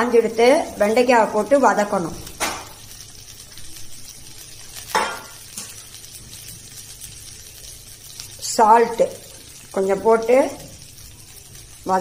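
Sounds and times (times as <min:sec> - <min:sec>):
frying sizzle: 0:00.0 - 0:12.0.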